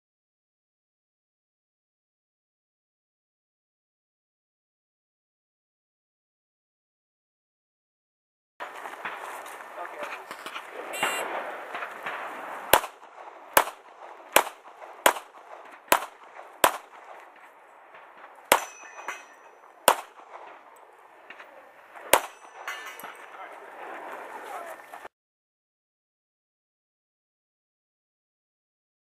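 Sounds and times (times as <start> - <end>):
handgun shots: 11.8 - 17.2, 18.5 - 20.6, 22.1 - 23.2
metallic ring of steel plates: 18.6 - 19.6, 22.3 - 23.3.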